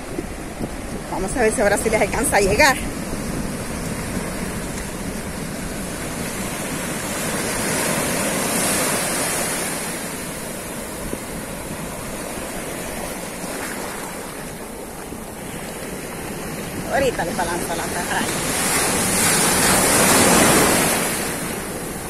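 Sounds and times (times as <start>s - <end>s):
ocean waves breaking: 0.0s - 22.0s.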